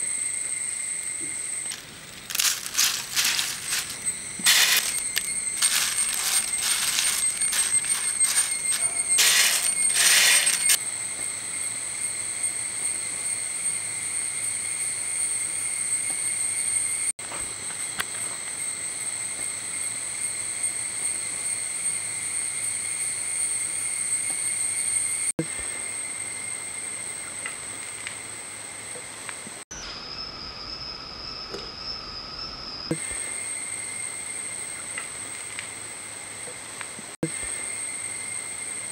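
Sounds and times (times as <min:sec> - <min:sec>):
fried snack rustling and crunching: 0:01.7 - 0:10.8.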